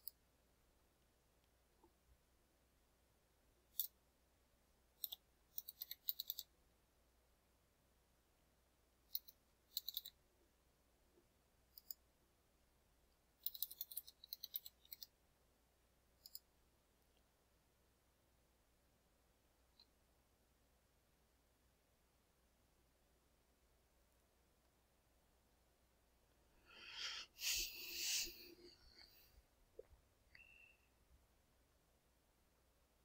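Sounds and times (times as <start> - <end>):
computer keyboard typing: 5.0 - 6.5, 9.1 - 10.2, 13.4 - 15.2.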